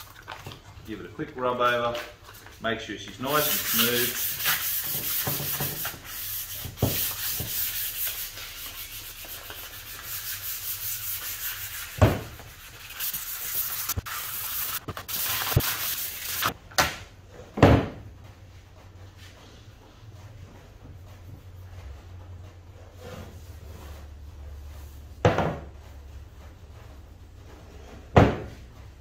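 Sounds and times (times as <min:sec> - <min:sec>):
sandpaper rubbing on wood: 0:03.2 - 0:16.6.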